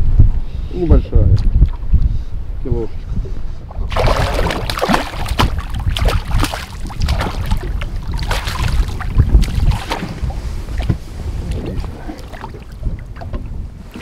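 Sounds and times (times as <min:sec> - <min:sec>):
low rumble of wind and water: 0:00.0 - 0:14.0
fish splashing at surface: 0:03.9 - 0:10.2.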